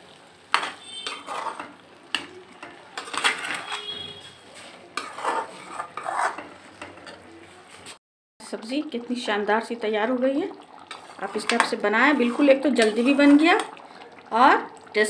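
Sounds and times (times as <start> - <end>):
metal ladle scraping steel pan: 0.5 - 7.2, 10.8 - 13.8.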